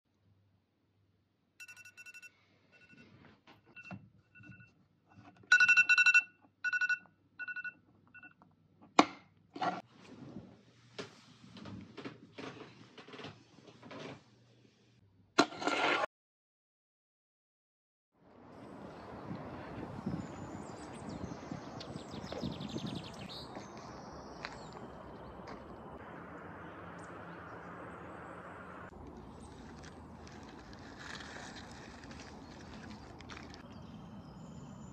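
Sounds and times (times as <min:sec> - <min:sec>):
birds chirping: 0:18.9 - 0:30.1.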